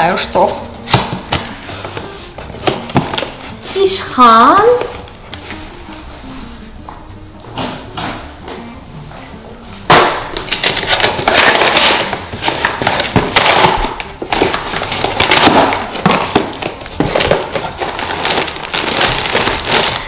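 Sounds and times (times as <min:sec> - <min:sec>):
packaging crinkling and rustling: 0:00.4 - 0:05.8, 0:10.4 - 0:20.0.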